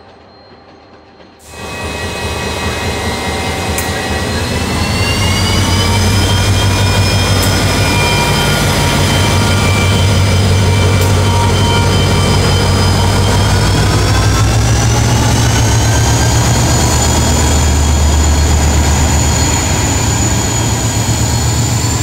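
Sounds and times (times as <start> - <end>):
diesel locomotive engine drone: 0.0 - 22.0
locomotive whine: 0.0 - 22.0.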